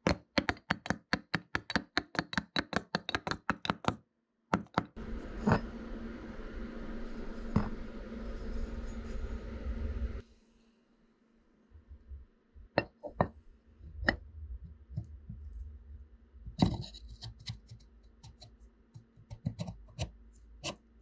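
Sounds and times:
metal scraping: 5.0s - 10.2s.

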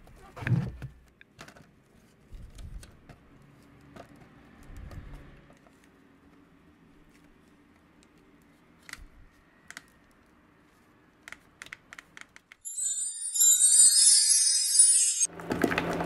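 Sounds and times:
music: 12.7s - 15.3s.

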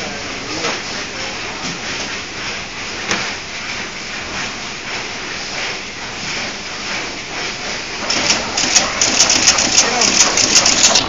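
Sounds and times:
sharp click: 8.1s - 11.0s.

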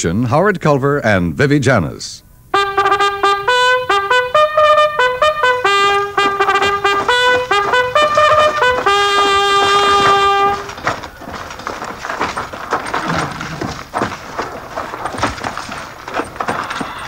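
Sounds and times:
solo trumpet playing a fanfare: 2.5s - 10.8s.

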